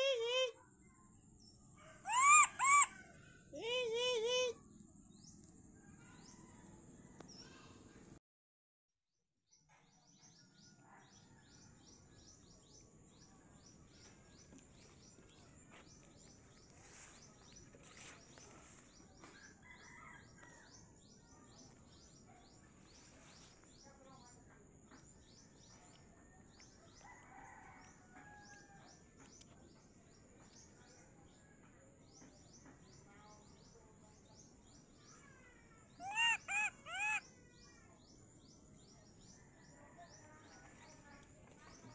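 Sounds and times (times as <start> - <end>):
loud arched calls: 2.1 - 3.1, 36.0 - 37.3
rapid high chirps: 36.0 - 37.2.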